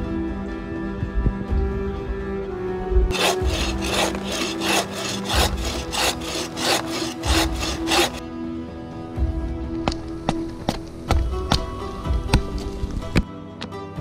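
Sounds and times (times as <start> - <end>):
quiet background music: 0.0 - 14.0
hand saw cutting branch: 3.1 - 8.2.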